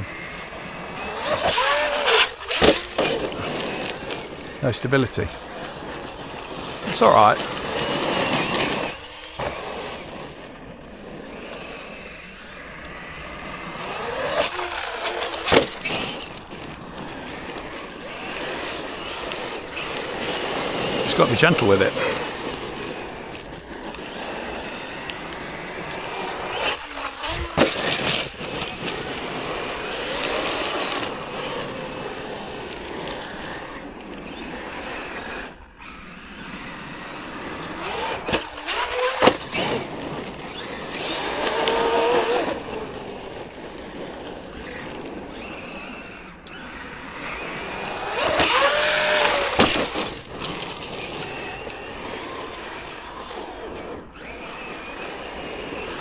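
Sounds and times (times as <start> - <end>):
rc truck motor whining: 0.0 - 56.0
tyres on gravel: 0.0 - 56.0.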